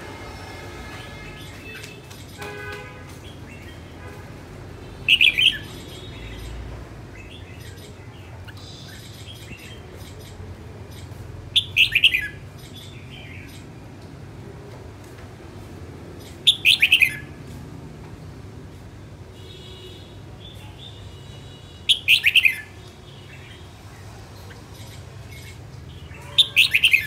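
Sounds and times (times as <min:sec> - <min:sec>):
bird song phrases: 0:05.0 - 0:13.7, 0:16.2 - 0:17.4, 0:19.7 - 0:27.0.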